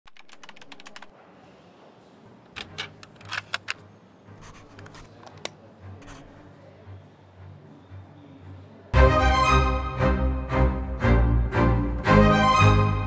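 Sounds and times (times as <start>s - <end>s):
marker writing on paper: 4.4s - 5.2s, 6.0s - 6.4s.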